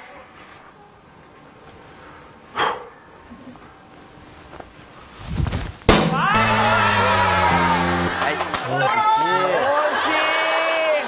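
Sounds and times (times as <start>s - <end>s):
music sting: 5.9s - 8.8s
men yelling: 6.2s - 11.0s.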